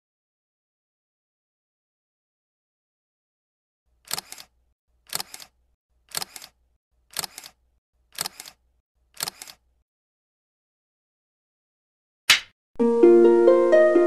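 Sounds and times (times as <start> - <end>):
sharp double click: 12.3 - 12.6.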